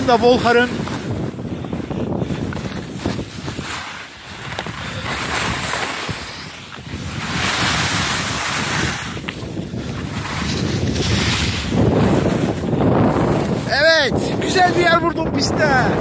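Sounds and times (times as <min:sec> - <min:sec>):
skis scraping over packed snow: 0:00.0 - 0:16.0
wind buffeting microphone: 0:00.0 - 0:16.0.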